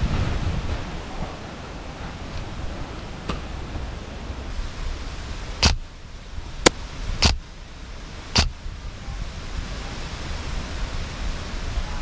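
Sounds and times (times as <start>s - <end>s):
wind rumble on microphone: 0.0s - 6.5s.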